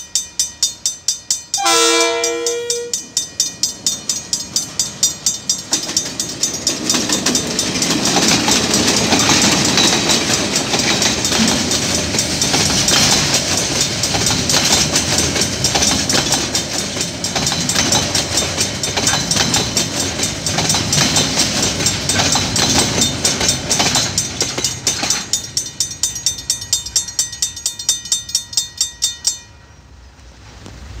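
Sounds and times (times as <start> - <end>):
level crossing bell ringing: 0.0 - 8.0
wheels clacking on rails: 0.0 - 29.7
freight train passing: 0.0 - 31.0.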